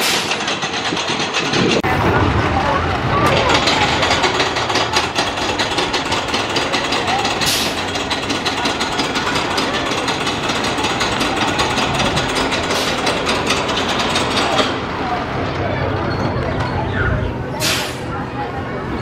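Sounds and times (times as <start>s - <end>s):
roller coaster chain lift clanking: 0.0s - 19.0s.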